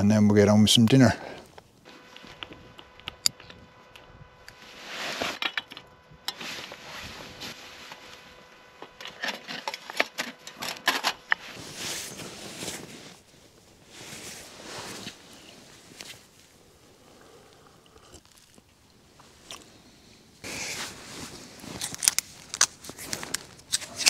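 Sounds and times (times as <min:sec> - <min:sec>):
rustling of gloves and packaging: 0:06.4 - 0:16.6, 0:18.3 - 0:24.0.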